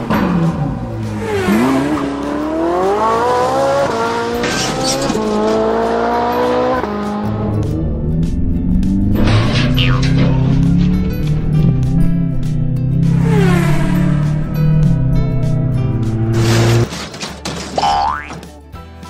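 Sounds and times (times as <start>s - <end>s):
race car engine accelerating: 0.0s - 16.9s
background music: 0.0s - 19.0s.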